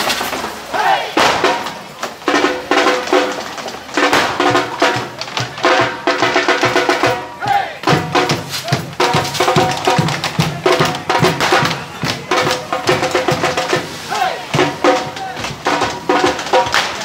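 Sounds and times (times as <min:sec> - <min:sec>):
drum band beating fast rhythm: 0:00.0 - 0:17.0.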